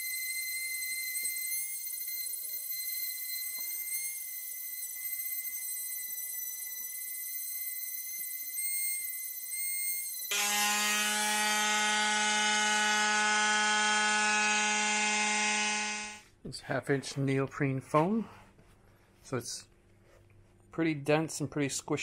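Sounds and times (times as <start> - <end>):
electric sander running: 10.3 - 16.2.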